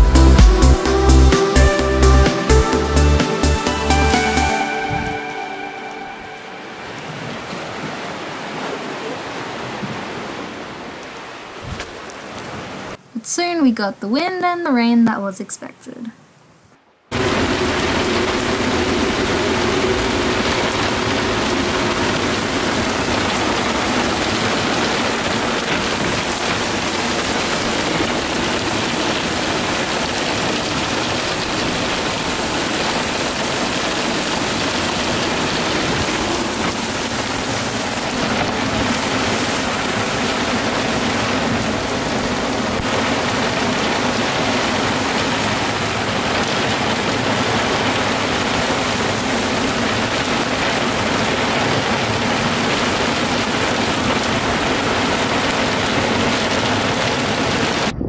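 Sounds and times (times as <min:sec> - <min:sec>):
heavy rain on boat deck: 0:00.0 - 0:13.0, 0:17.1 - 0:57.9
strong wind: 0:04.9 - 0:05.2, 0:17.1 - 0:58.0.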